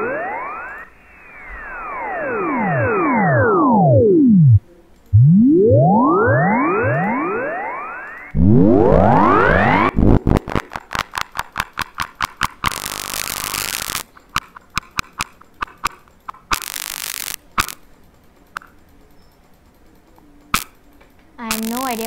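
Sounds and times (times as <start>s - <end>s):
rising electronic sweep: 0.0s - 10.8s
fast electronic clicks: 0.0s - 17.8s, 20.5s - 20.8s, 21.4s - 22.0s
bursts of hiss: 12.6s - 14.0s, 16.5s - 17.8s.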